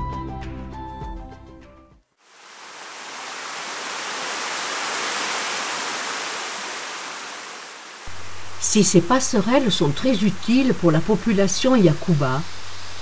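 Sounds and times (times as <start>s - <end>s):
background music: 0.0s - 2.0s
rushing water: 2.2s - 8.6s.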